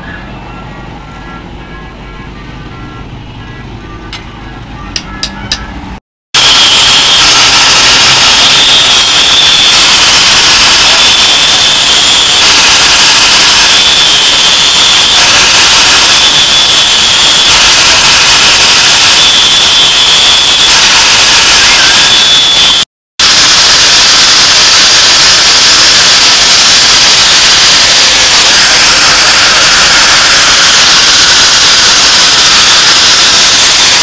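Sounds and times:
angle grinder grinding steel: 0:23.5 - 0:34.0.

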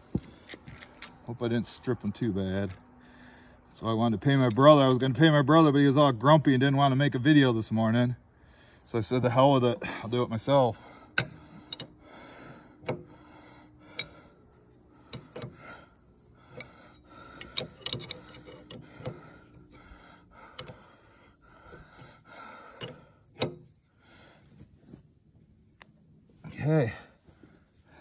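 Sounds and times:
wrench clicking on metal fitting: 0:17.4 - 0:19.2.

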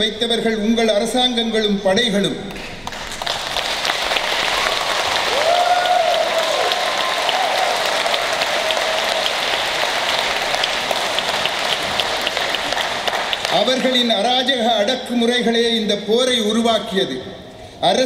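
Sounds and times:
audience applauding: 0:02.6 - 0:14.2.

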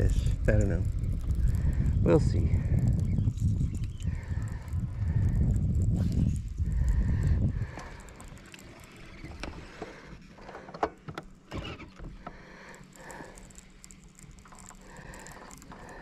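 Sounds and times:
wind rumble on microphone: 0:00.0 - 0:09.7
fishing reel cranking and clicking: 0:00.0 - 0:10.1, 0:11.4 - 0:16.0.

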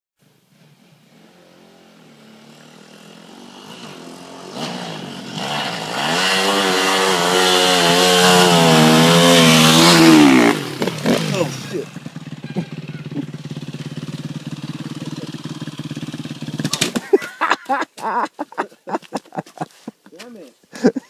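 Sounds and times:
dirt bike engine revving: 0:01.0 - 0:17.4.

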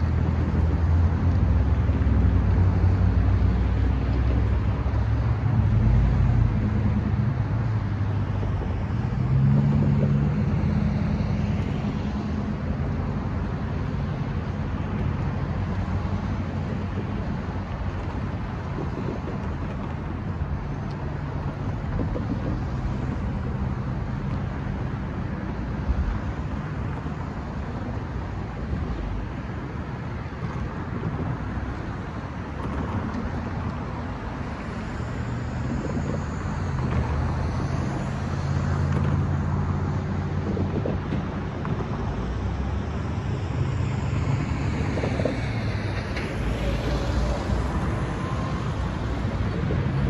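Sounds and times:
cars driving past: 0:00.0 - 0:50.0
low engine hum: 0:00.0 - 0:50.0
wind on microphone: 0:00.0 - 0:50.0.

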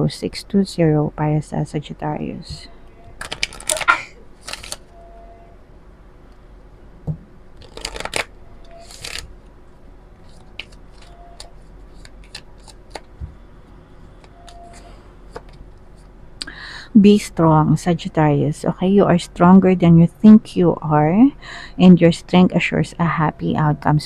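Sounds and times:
cards rustling while shuffled: 0:03.2 - 0:04.9, 0:07.6 - 0:09.3, 0:10.2 - 0:13.3, 0:14.0 - 0:16.1.

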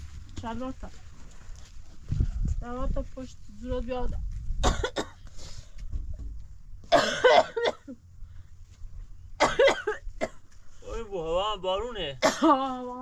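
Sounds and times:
person coughing: 0:04.6 - 0:05.2, 0:06.9 - 0:08.0, 0:09.4 - 0:10.4, 0:12.2 - 0:12.7.

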